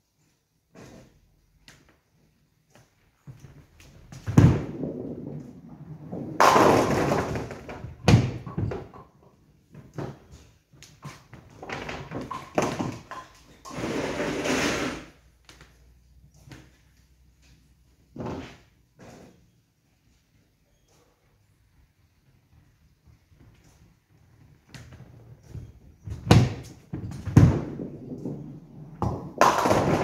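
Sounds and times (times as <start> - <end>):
bowling ball thudding and rolling: 3.4 - 15.2, 18.0 - 19.4, 24.4 - 30.0
pins crashing and clattering: 4.2 - 9.2, 11.5 - 15.1, 26.1 - 30.0.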